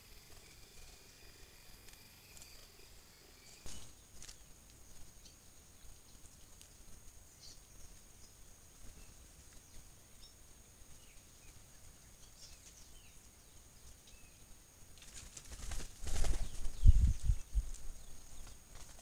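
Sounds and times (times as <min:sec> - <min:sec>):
faint bird chirps: 0:00.0 - 0:19.0
large bird wing flaps: 0:15.0 - 0:19.0.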